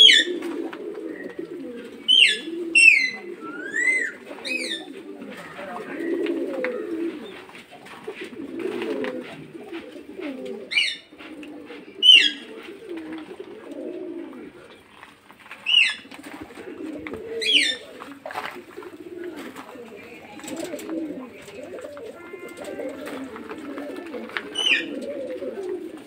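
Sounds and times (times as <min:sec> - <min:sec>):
pigeons cooing: 0:00.0 - 0:26.0.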